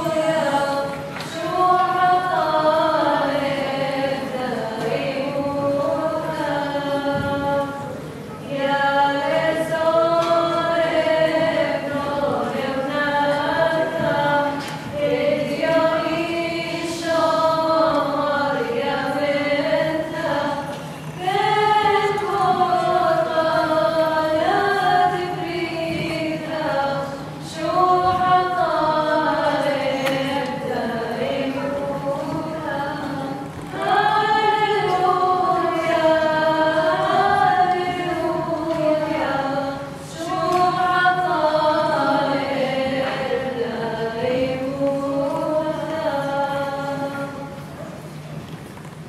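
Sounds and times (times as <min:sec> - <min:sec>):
group of voices singing: 0:00.0 - 0:47.7.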